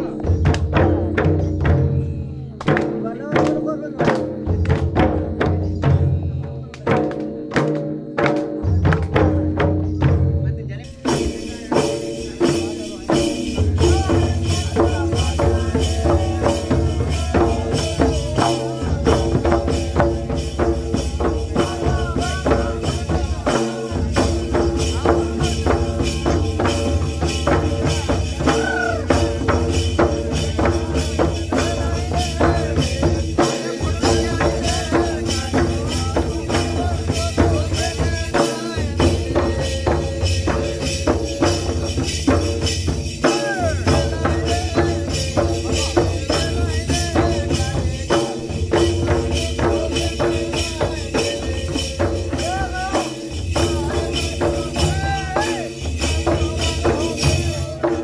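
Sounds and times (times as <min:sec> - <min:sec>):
hand-beaten barrel drums: 0:00.0 - 0:58.0.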